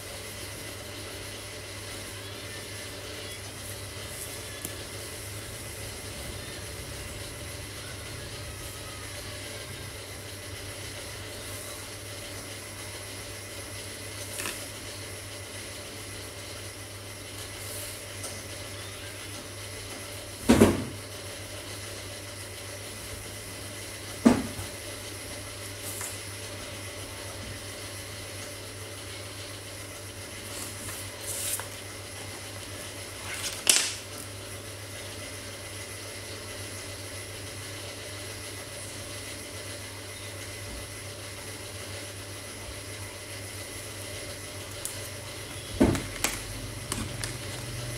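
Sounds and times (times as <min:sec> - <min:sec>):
markers and paper handling: 0:30.4 - 0:31.8, 0:33.1 - 0:34.1, 0:46.0 - 0:47.9.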